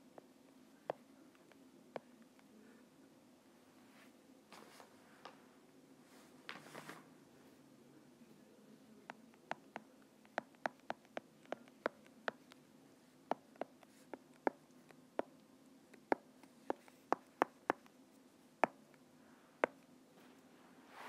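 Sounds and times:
faint steady hum: 0.0 - 21.0
stylus tapping on tablet screen: 9.0 - 12.6, 13.3 - 18.0, 18.6 - 19.0, 19.6 - 19.8.

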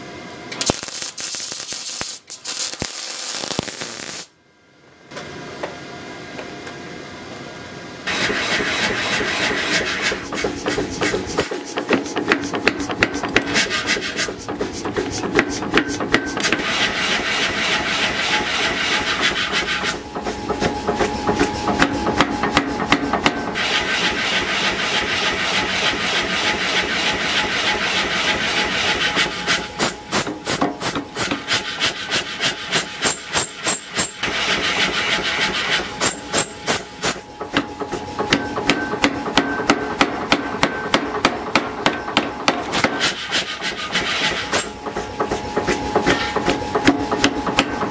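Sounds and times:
power hammer striking steel: 29.2 - 34.9, 35.7 - 44.8.

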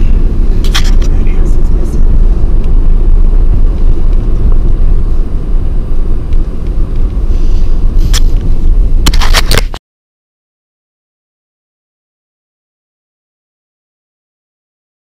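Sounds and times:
vehicle wind and road noise: 0.0 - 9.8.

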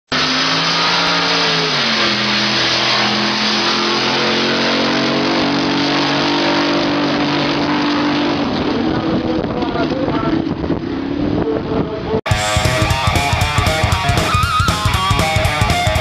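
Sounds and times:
boat engine revving hard: 0.1 - 9.5.

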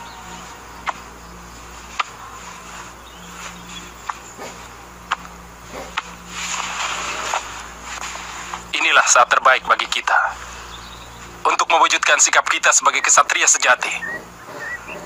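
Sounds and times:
faint hiss: 0.0 - 13.9
low hum: 0.0 - 15.0
sharp clicks: 0.8 - 1.1, 2.0 - 2.2, 5.1 - 6.1.

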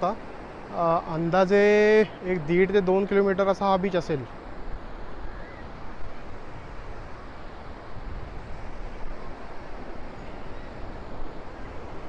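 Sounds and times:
surf breaking on beach: 0.2 - 12.0
wind buffeting microphone: 4.3 - 12.0.

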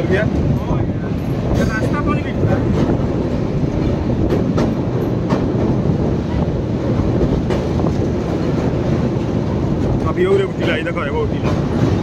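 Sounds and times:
train rumbling over bridge: 0.0 - 12.0
wheels clacking over rail joints: 0.0 - 12.0.

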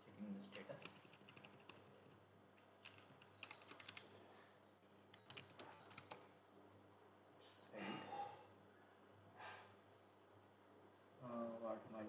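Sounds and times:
faint keyboard typing: 0.0 - 7.0.

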